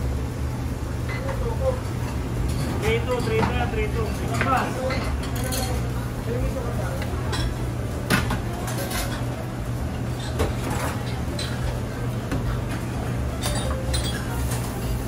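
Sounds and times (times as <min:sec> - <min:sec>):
low machine hum: 0:00.0 - 0:15.0
utensils and pans clinking: 0:01.0 - 0:05.9, 0:07.0 - 0:09.4, 0:10.0 - 0:15.0.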